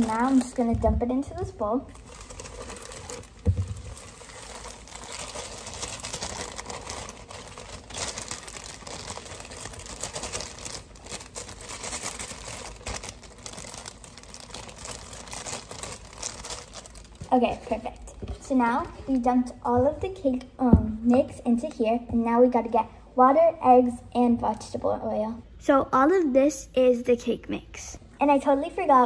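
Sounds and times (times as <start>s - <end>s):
plastic bag crinkling: 0.0s - 18.2s.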